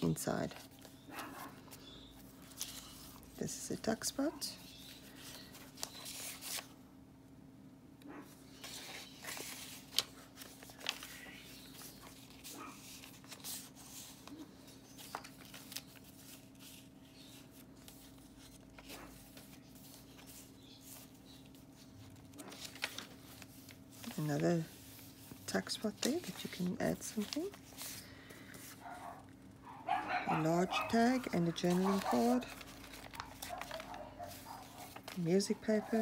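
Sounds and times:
paper rustling and page turns: 0.0s - 6.8s, 8.5s - 29.1s, 30.7s - 36.0s.

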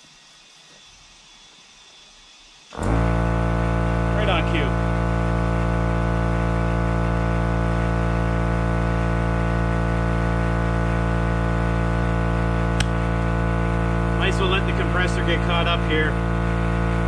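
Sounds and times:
air compressor motor hum: 2.6s - 17.0s
sharp click: 12.8s - 13.0s.

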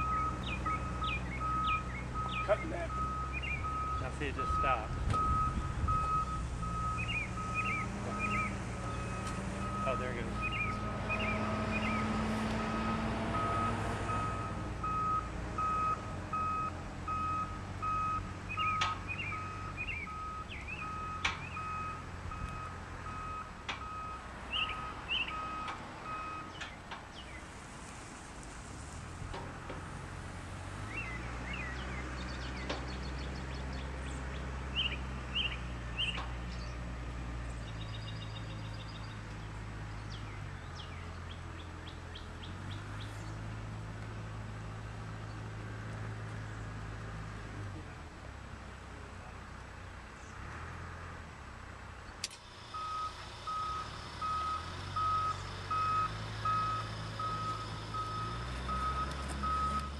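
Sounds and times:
bird chirps: 0.0s - 4.1s, 6.9s - 9.2s, 9.8s - 12.1s, 18.5s - 21.9s, 24.5s - 25.6s, 30.9s - 36.8s
reversing alarm beeping: 0.0s - 26.5s, 52.6s - 59.9s
engine running: 0.0s - 59.9s.

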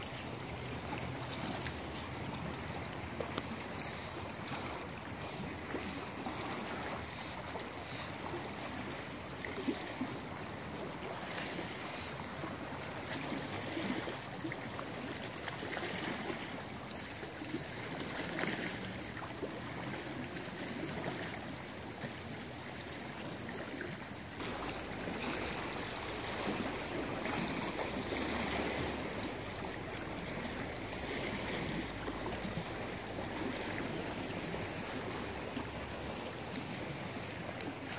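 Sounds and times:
lake waves lapping on shore: 0.0s - 37.9s.

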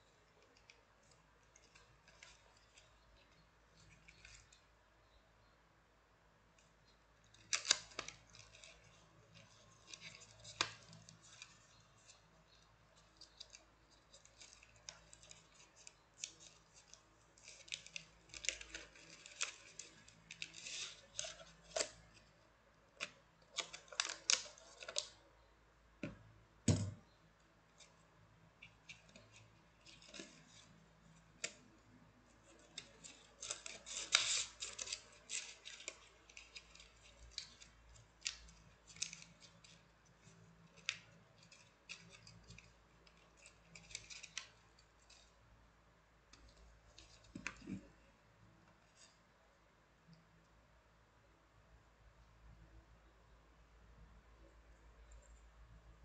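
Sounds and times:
packaging rustling and crinkling: 32.4s - 45.3s.

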